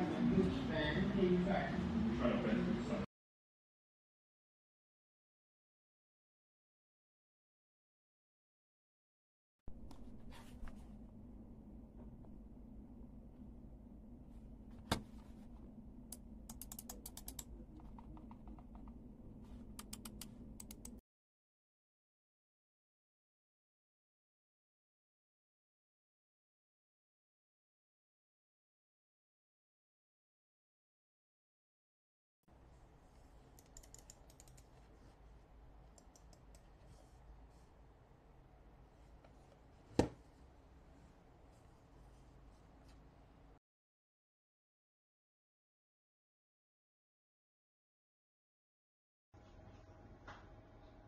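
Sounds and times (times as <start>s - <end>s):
low room hum: 9.7s - 21.0s, 32.5s - 43.6s
mouse buttons clicking: 16.1s - 19.0s, 19.7s - 21.0s, 33.5s - 34.9s, 35.9s - 36.7s.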